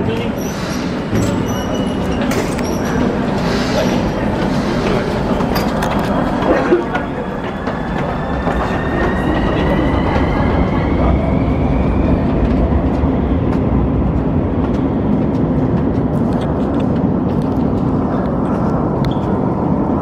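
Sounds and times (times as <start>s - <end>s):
metro train whining: 0.0s - 20.0s
footsteps on stone stairs: 12.3s - 18.1s.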